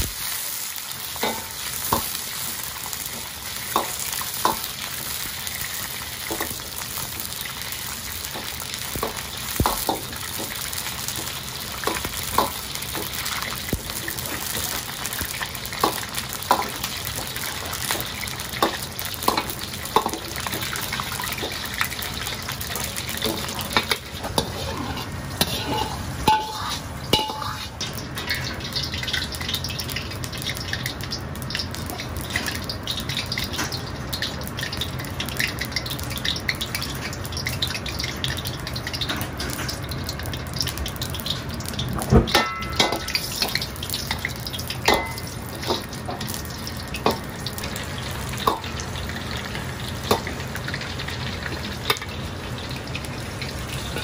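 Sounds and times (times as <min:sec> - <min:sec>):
oil bubbling and sizzling: 0:00.0 - 0:54.0
wok burner rumble: 0:00.0 - 0:54.0
metal ladle clinking on wok: 0:23.8 - 0:27.7, 0:42.3 - 0:43.2, 0:44.9 - 0:45.8.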